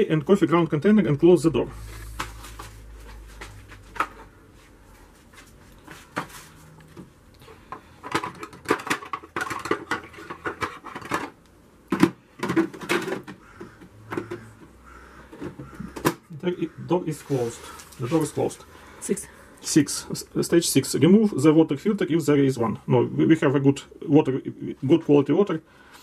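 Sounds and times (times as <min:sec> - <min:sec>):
plastic parts clicking and knocking: 0:03.9 - 0:04.3, 0:07.0 - 0:16.3.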